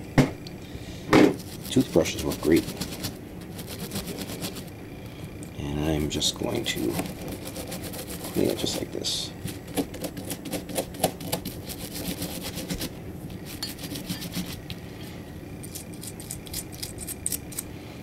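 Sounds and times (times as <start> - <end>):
toothbrush scrubbing metal: 1.4 - 4.7, 6.5 - 14.7, 15.6 - 17.6.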